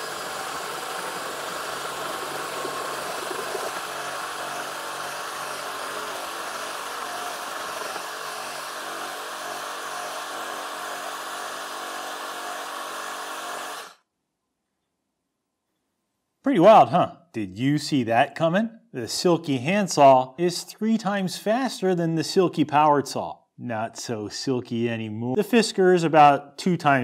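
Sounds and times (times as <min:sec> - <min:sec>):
saw motor drone: 0:00.0 - 0:14.0
saw rasping through wood: 0:00.0 - 0:14.0.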